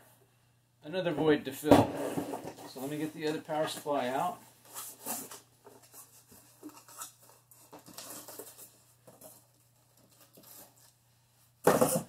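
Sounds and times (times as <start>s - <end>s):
cardboard packaging rustling: 2.2s - 11.0s.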